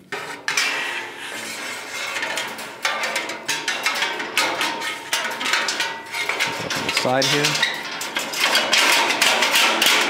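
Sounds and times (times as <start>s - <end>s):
metal shim scraping steel column: 0.0s - 9.0s
sharp metal knocks: 2.2s - 10.0s.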